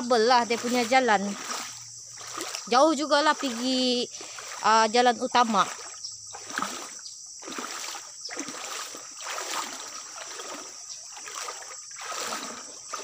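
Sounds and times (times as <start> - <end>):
footsteps splashing through water and mud: 0.0 - 13.0.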